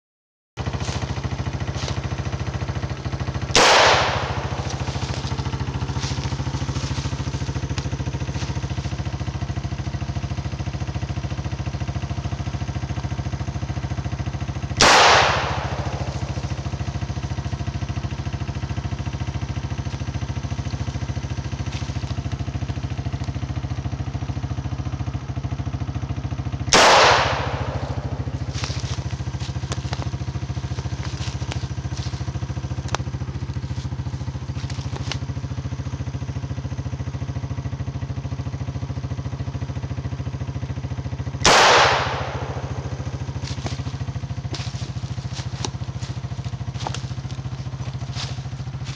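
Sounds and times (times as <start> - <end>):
atv engine idling: 0.6 - 48.9
revolver shots with echo: 3.4 - 5.0, 14.8 - 16.5, 26.7 - 28.5, 41.4 - 43.0.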